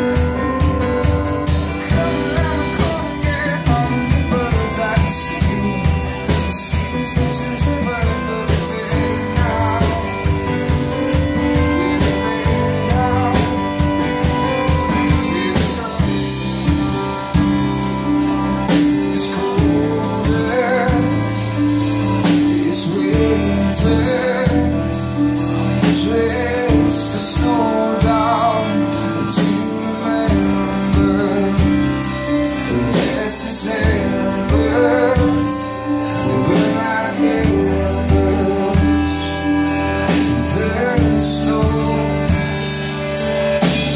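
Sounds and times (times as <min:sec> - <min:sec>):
bass guitar: 0:00.0 - 0:43.9
digital piano: 0:00.0 - 0:43.9
drum kit: 0:00.0 - 0:43.9
electric guitar: 0:00.0 - 0:43.9
man singing: 0:00.0 - 0:43.9.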